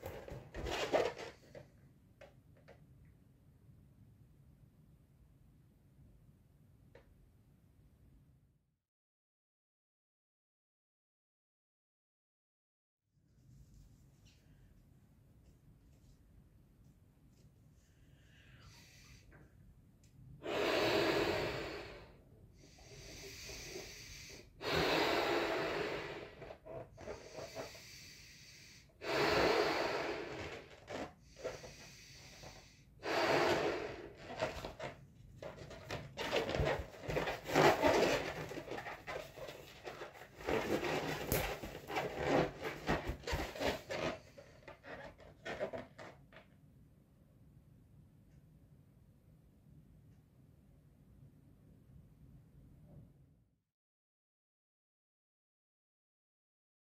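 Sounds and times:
breathy puffs into balloon: 20.4s - 34.7s
balloon rubbing: 29.0s - 34.9s, 36.2s - 45.8s.

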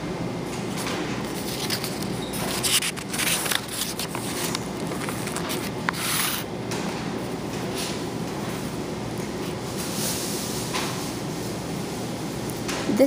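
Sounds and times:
paper pages rustling: 1.2s - 6.5s.

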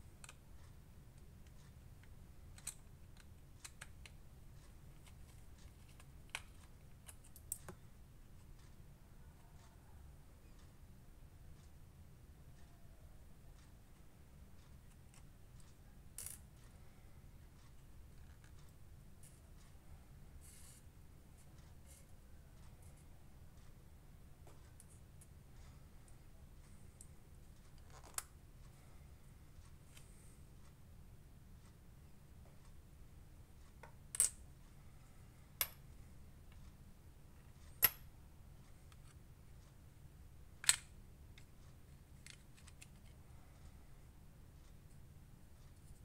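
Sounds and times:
metal parts clicking on tabletop: 1.5s - 4.2s, 40.6s - 40.9s.

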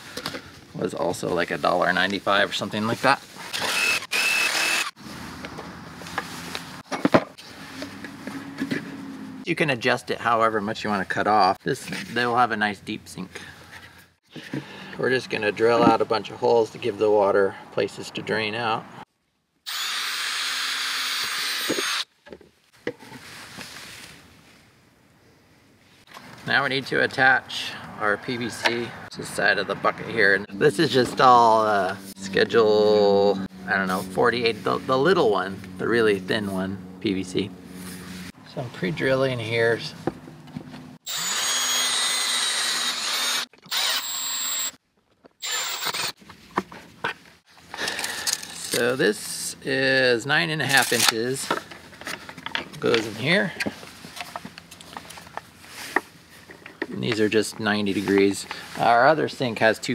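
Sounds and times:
cordless drill boring plastic: 3.5s - 5.0s, 19.7s - 22.0s, 41.1s - 44.8s, 45.4s - 46.2s.

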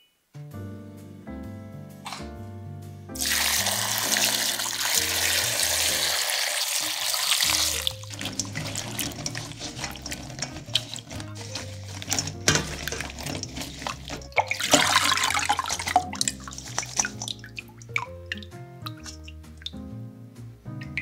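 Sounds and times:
beans tossed in metal colander: 3.2s - 19.7s
tap water splashing: 3.2s - 19.9s, 20.8s - 21.0s.

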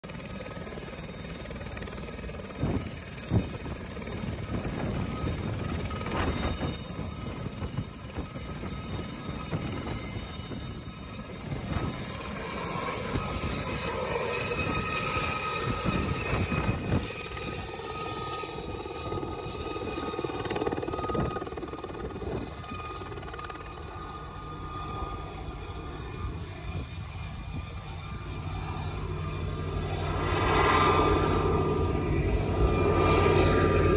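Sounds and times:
helicopter flying: 0.0s - 33.9s
turbine engine whine: 0.0s - 33.9s.

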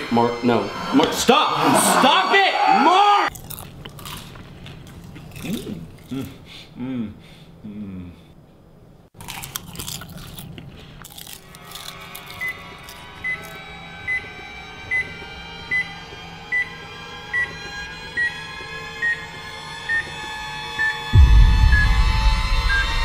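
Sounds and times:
steady low drone: 21.1s - 23.0s.

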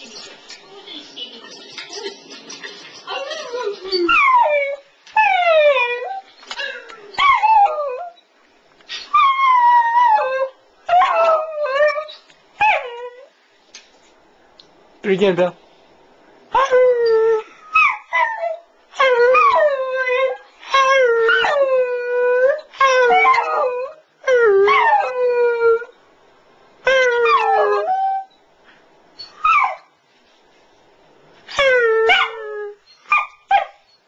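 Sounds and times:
dog howling: 26.9s - 28.3s.

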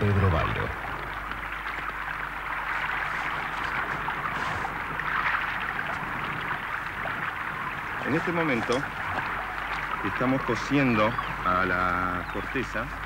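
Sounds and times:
faint low hum: 0.0s - 13.0s
steady rushing noise: 0.0s - 13.0s.

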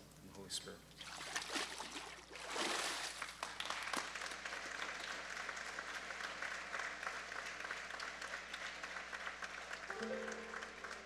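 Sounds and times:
congregation applauding: 3.1s - 11.0s.

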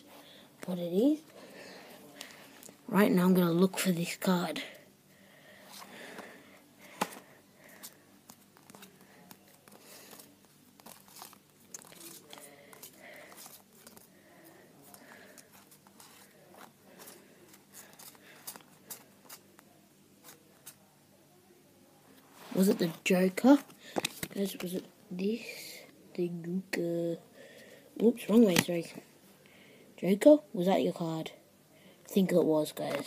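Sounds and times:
playing cards flicking and sliding: 7.0s - 7.2s, 7.8s - 14.1s, 14.9s - 19.6s, 23.9s - 24.7s, 28.4s - 28.9s.

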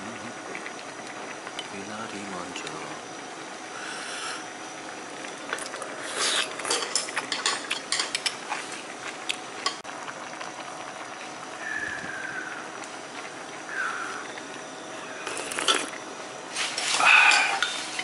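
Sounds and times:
room hiss: 0.0s - 9.9s, 10.7s - 18.0s
utensils clinking on ceramic dishes: 6.6s - 8.4s, 15.3s - 15.9s, 17.2s - 18.0s.

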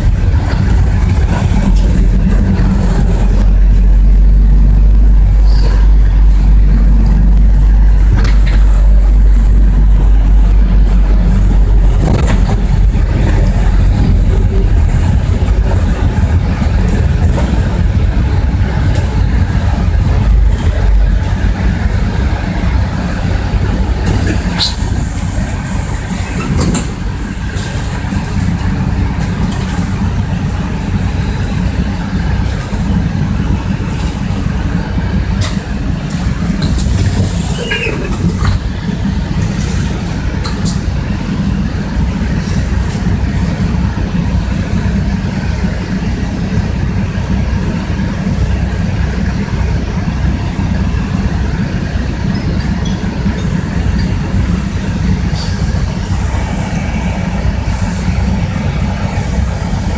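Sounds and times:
bus engine drone: 0.0s - 59.9s
bus body rattling clicks: 12.0s - 17.9s, 24.0s - 28.6s, 35.4s - 41.0s.

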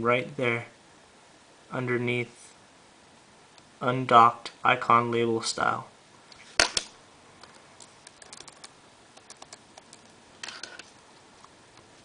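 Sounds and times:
computer keyboard key taps: 8.1s - 10.0s.

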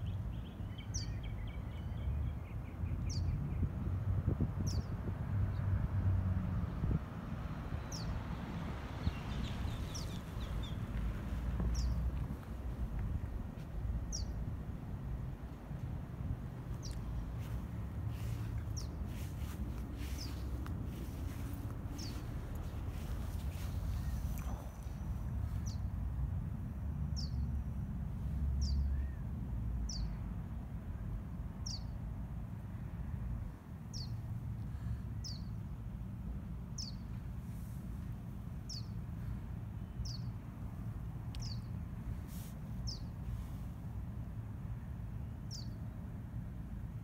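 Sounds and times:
bird chirping: 0.0s - 3.7s, 9.0s - 11.0s, 11.6s - 12.4s, 14.1s - 14.4s, 16.7s - 25.9s, 38.7s - 39.0s, 39.8s - 40.4s, 41.4s - 41.8s.

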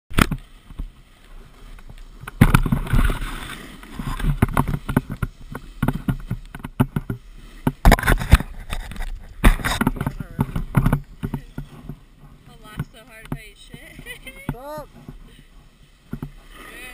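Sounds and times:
camera knocks and thumps: 1.8s - 3.2s, 4.0s - 15.3s, 16.1s - 16.4s
snow scraping under board edges: 2.4s - 6.4s, 11.4s - 16.9s.

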